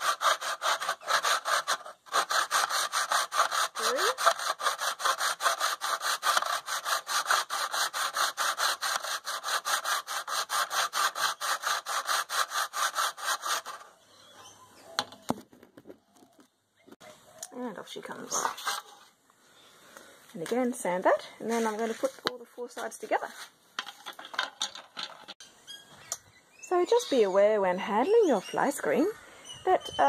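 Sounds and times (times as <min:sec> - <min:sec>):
hand saw cutting: 0:00.0 - 0:13.9.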